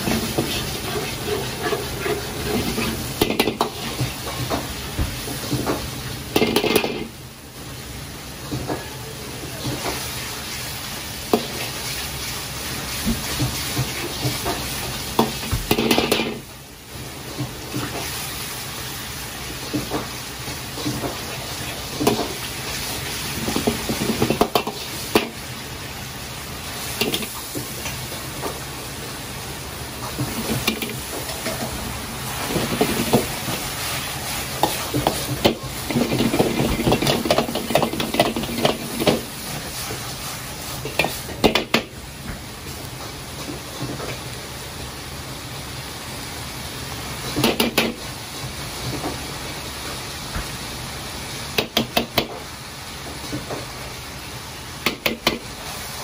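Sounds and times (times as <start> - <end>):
sauce sizzling: 0.0 - 56.0
metal ladle scraping in a wok: 0.1 - 4.0.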